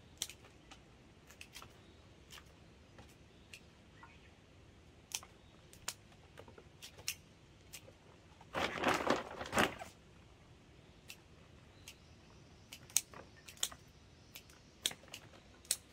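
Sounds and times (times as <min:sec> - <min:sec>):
pruning shears snipping: 0:00.2 - 0:03.7, 0:06.8 - 0:08.0, 0:12.7 - 0:15.9
plastic bag crinkling: 0:08.4 - 0:10.0.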